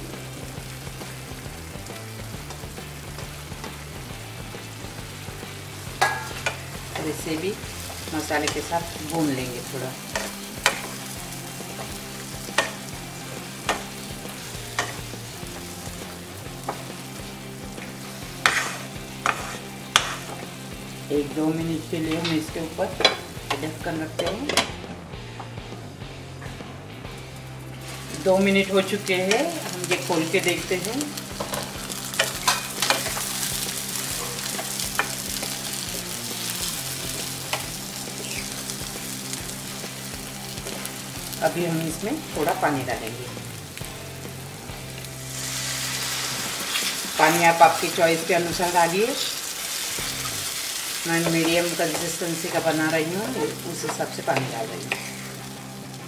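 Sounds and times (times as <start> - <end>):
low sizzle: 0.0 - 56.0
wooden spatula stirring: 18.4 - 20.2.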